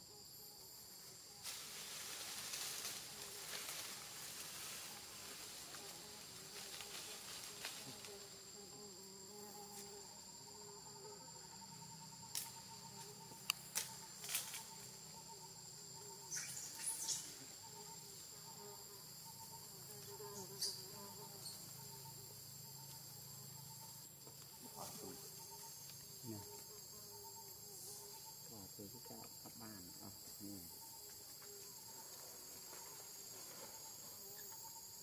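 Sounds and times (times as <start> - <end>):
high-pitched insect chorus: 0.0 - 35.0
rustling hiss: 1.0 - 10.2.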